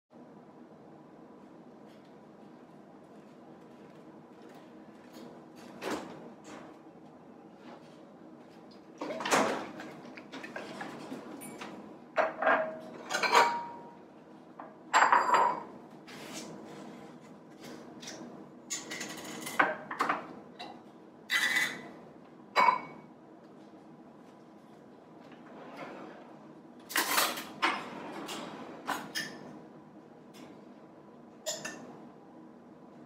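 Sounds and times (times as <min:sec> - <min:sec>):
dishes and utensils clinking: 0:12.2 - 0:14.0, 0:14.9 - 0:15.7, 0:22.6 - 0:23.0, 0:31.5 - 0:31.9.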